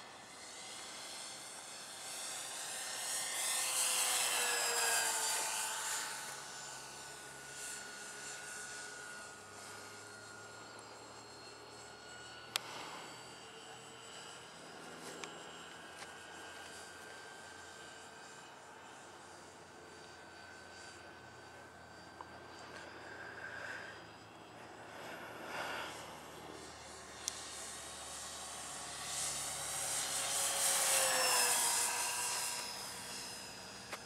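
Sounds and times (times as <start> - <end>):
model plane motors whining: 0.0 - 34.0.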